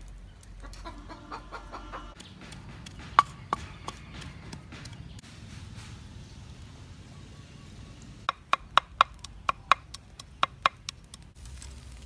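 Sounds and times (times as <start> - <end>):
chicken clucking: 0.6 - 4.7.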